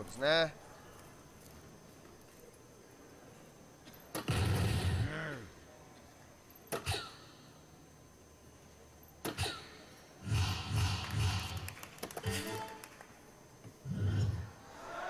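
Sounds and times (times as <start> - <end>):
voices: 14.6 - 15.0.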